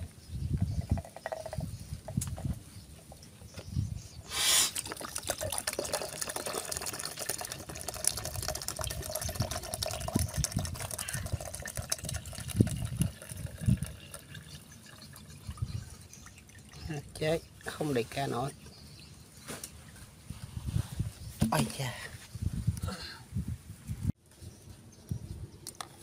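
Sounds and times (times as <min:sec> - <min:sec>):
coconut water pouring into plastic tub: 0:04.7 - 0:18.5.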